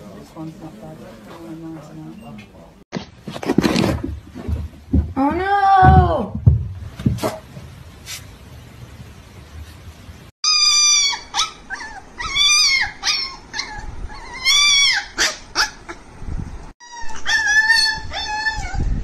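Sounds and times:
puppies howling: 10.5s - 15.8s, 16.8s - 19.0s.

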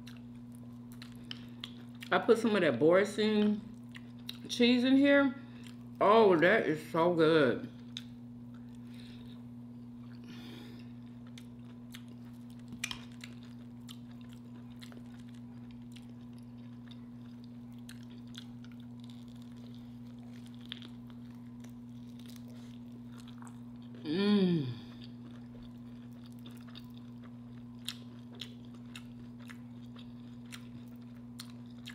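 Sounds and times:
close-miked chewing: 0.0s - 2.2s, 10.0s - 24.0s, 24.8s - 31.9s
steady low hum: 0.0s - 31.9s.

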